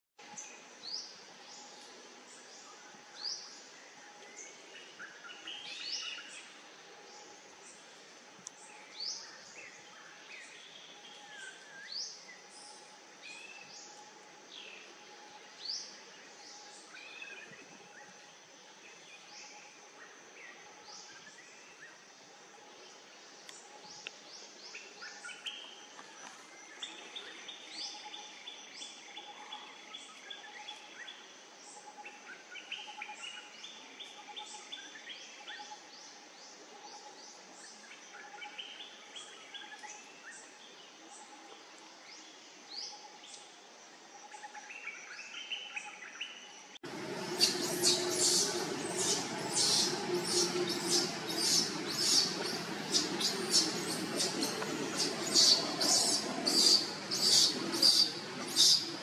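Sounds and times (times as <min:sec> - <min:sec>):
birds chirping: 0:46.8 - 0:59.0
rapid high-pitched chirps: 0:46.9 - 0:59.0.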